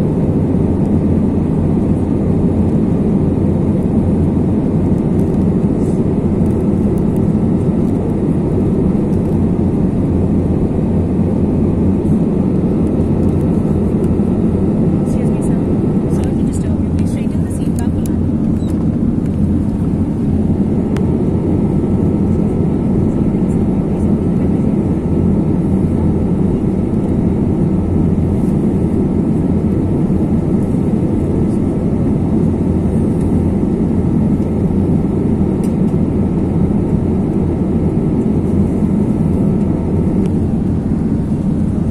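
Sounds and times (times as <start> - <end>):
jet engine and airflow rumble: 0.0 - 41.9.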